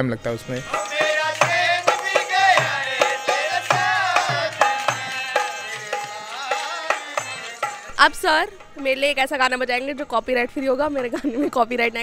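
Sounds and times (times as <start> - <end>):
harmonium: 0.0 - 12.0
drum beat: 0.6 - 9.4.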